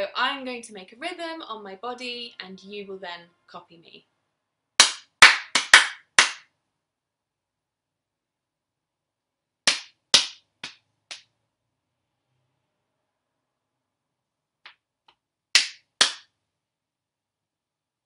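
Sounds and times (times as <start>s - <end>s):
hand claps and body slaps: 4.8s - 6.5s, 9.6s - 11.3s, 14.6s - 16.4s.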